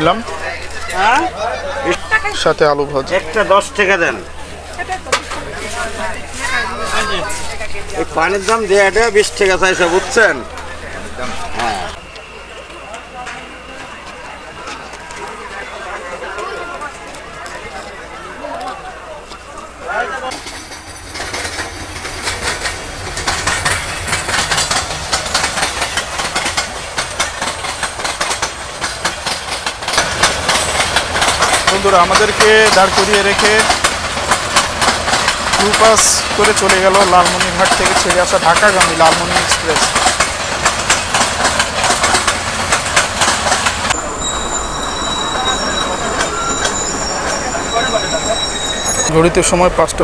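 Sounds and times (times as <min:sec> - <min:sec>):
train passing at speed: 0:00.0 - 0:50.0
wheels clattering over rail joints: 0:20.2 - 0:49.1
high-pitched wheel squeal: 0:43.9 - 0:49.2.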